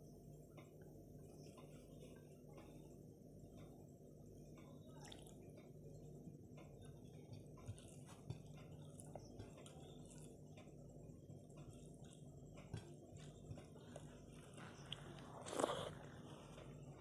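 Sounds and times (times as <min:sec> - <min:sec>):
low steady hum: 0:00.0 - 0:17.0
wet squishes of rice mixing: 0:04.6 - 0:17.0.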